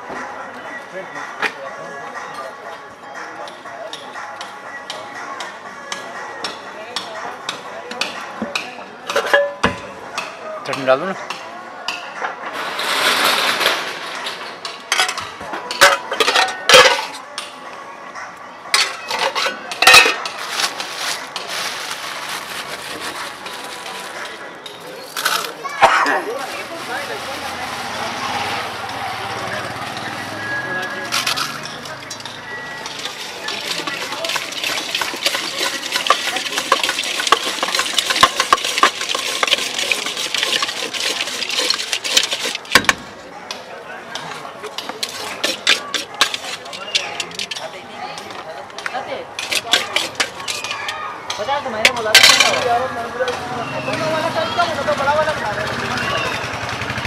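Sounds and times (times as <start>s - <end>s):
spoon scraping in steel pot: 30.8s - 42.8s, 44.7s - 47.7s, 49.4s - 51.0s.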